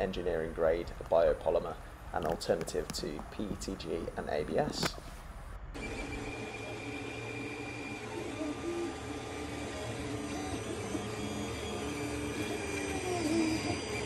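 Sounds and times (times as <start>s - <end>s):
stepper motors whining: 5.7s - 14.0s
fan humming: 5.8s - 14.0s.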